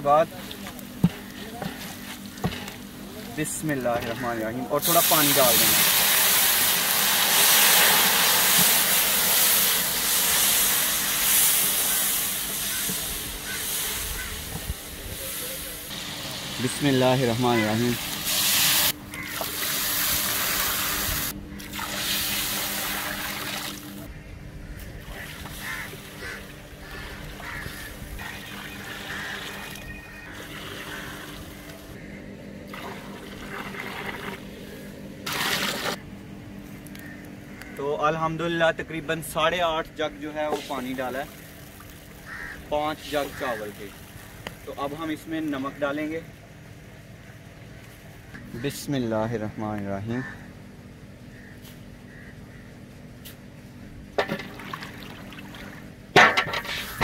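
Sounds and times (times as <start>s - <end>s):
water sizzling in hot oil: 4.8s - 14.5s, 15.8s - 23.5s
splashing and bubbling: 21.6s - 24.1s, 25.0s - 31.7s, 32.7s - 36.0s, 54.2s - 56.1s.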